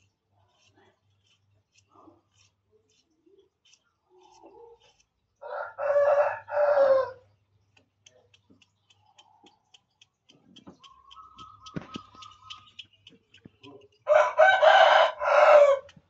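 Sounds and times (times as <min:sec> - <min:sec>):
knife shaving cucumber ticks: 0:00.0 - 0:06.0, 0:07.6 - 0:16.0
rooster crowing: 0:05.4 - 0:07.2, 0:14.1 - 0:15.9.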